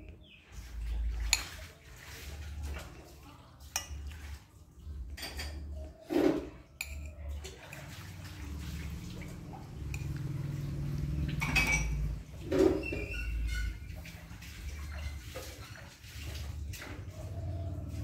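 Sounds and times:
spoon scraping ceramic plate: 5.2 - 8.0, 9.8 - 13.9.

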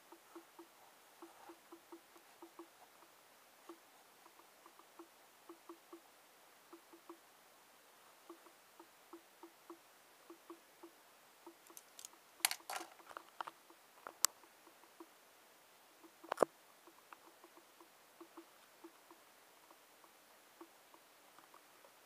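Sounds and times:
faint regular ticking: 0.0 - 7.3, 8.1 - 15.2, 15.9 - 22.0
pen put down click: 11.7 - 13.0
handling sounds on a desk: 11.7 - 13.2.

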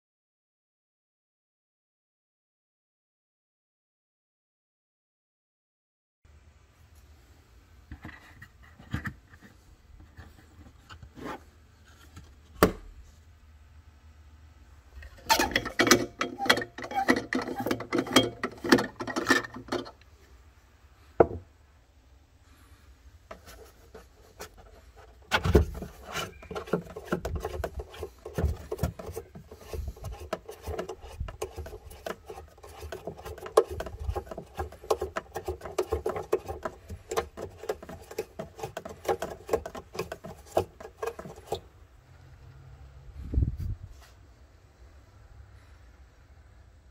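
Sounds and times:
plastic parts clicking and scraping: 15.0 - 20.1, 23.3 - 41.7.

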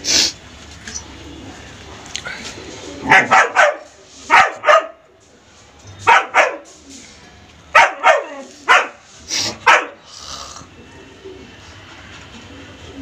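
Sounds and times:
dog barking: 3.1 - 5.0, 6.0 - 6.7, 7.7 - 10.0.

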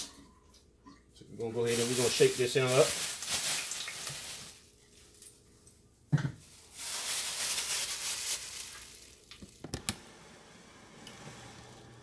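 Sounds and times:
hot grease sizzling: 1.6 - 4.6.

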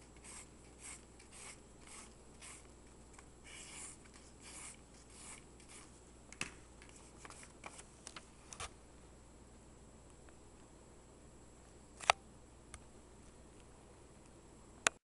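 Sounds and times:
faint rubbing strokes on paper: 0.0 - 2.7, 3.4 - 6.0.

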